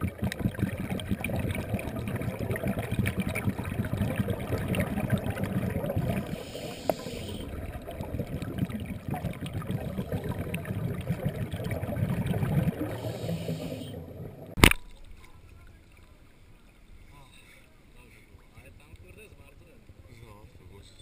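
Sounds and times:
muffled underwater crackling and bubbling: 0.0 - 16.2
hiss: 6.3 - 7.5, 12.9 - 14.0.

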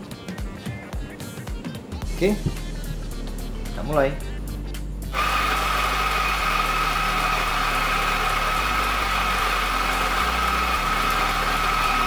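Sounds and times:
coffee grinder grinding: 5.2 - 12.0.

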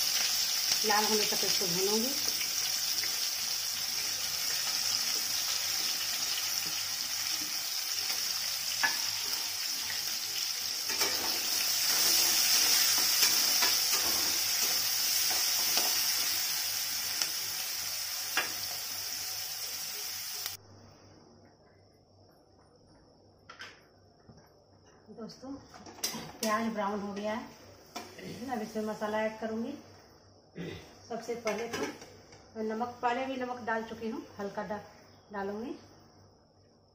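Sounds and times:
onions sizzling in hot oil: 0.0 - 20.6.

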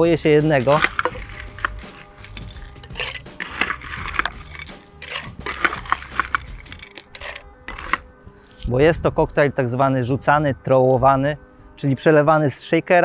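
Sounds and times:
ice cubes clinking into metal shaker: 0.6 - 8.0.

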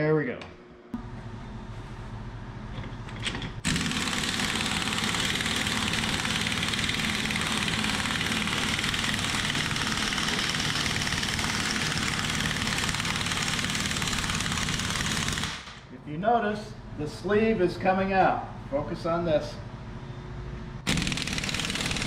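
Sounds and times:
impact wrench hammering: 3.6 - 15.8, 20.8 - 22.0.

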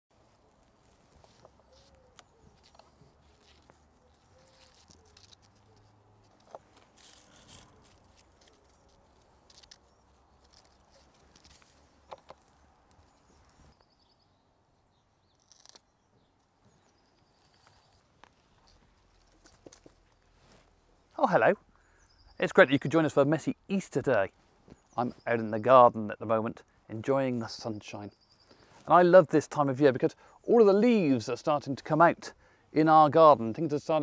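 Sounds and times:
faint birdsong: 0.1 - 34.0
plant stems snapping: 1.0 - 13.2, 15.4 - 15.9.

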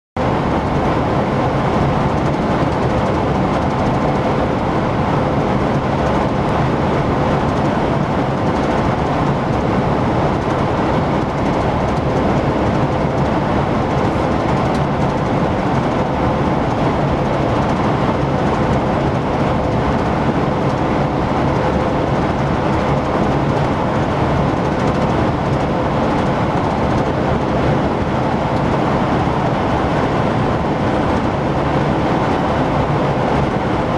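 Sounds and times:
low engine drone: 0.2 - 33.9
tyre and wind noise: 0.2 - 33.9.

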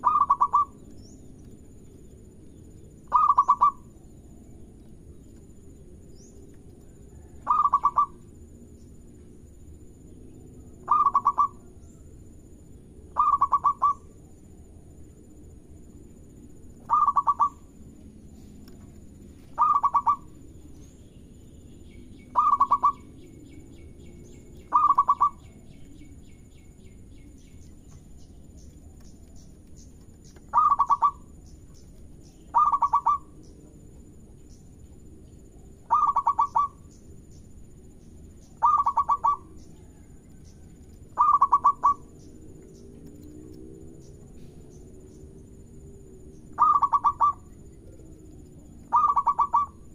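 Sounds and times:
dove cooing: 0.0 - 0.8, 3.1 - 3.9, 7.1 - 8.2, 10.8 - 11.7, 13.1 - 14.1, 16.8 - 17.7, 19.5 - 20.5, 22.3 - 23.2, 24.7 - 25.6, 30.5 - 31.3, 32.5 - 33.4, 35.8 - 36.9, 38.6 - 40.1, 41.2 - 42.2, 46.6 - 48.1, 48.8 - 49.9.

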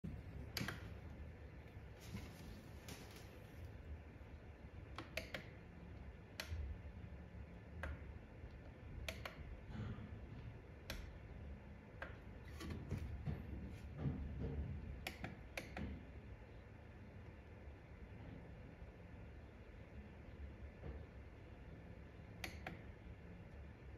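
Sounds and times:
push buttons clicking: 0.4 - 1.0, 4.9 - 5.6.

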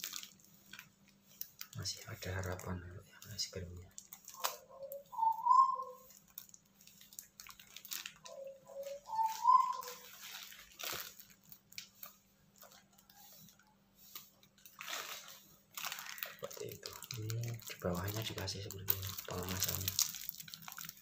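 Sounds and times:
paper and plastic wrapping rustling: 0.0 - 5.0, 6.0 - 21.0
short rising pitched calls: 4.4 - 6.1, 8.3 - 10.2.

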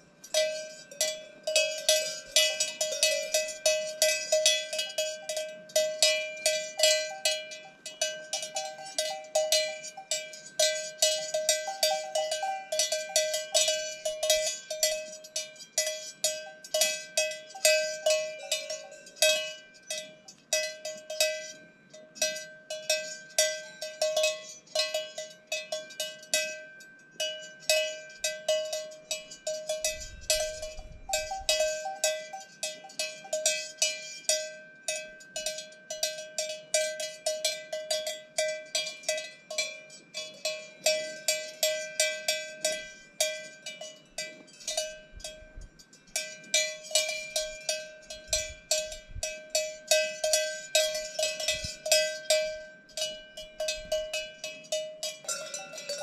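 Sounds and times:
cowbells clanking: 0.0 - 56.0.

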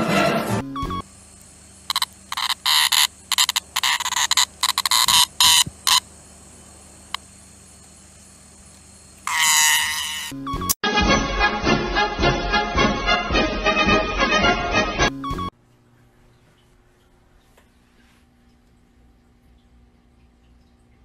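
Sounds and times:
music: 0.0 - 1.0, 10.5 - 15.5
insect buzzing chirps: 0.8 - 10.7.

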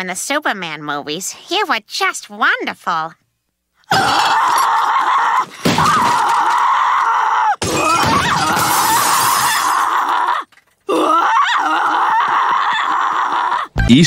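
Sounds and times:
woman screaming: 3.9 - 13.8
glass shattering: 4.1 - 6.7, 7.6 - 10.7
wooden chairs being smashed: 4.1 - 7.0, 7.6 - 10.6.

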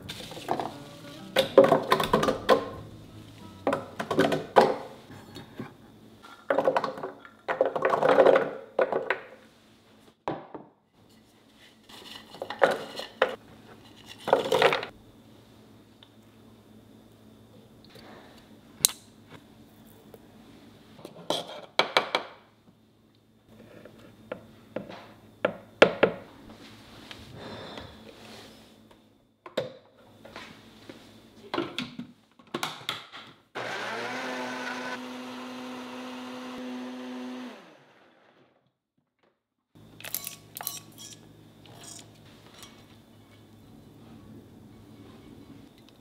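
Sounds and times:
blender motor grinding: 33.6 - 38.6.

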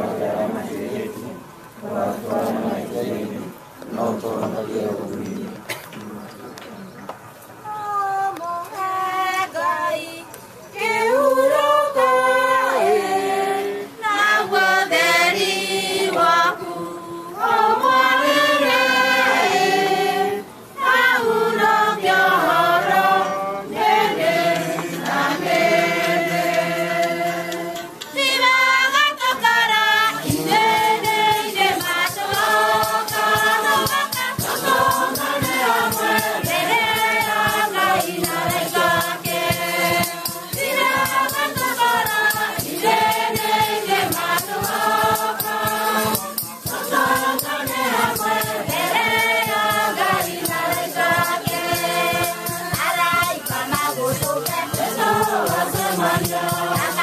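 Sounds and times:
choir singing a hymn: 0.0 - 5.7, 7.8 - 57.0
steady rhythmic beat: 22.2 - 57.0.

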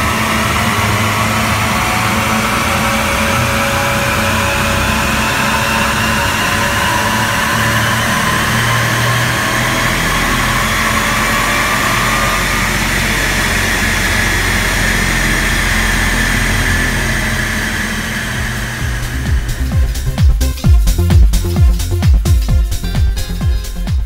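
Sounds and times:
engine and roller drone: 0.0 - 23.8
high supercharger whine: 0.0 - 24.0.

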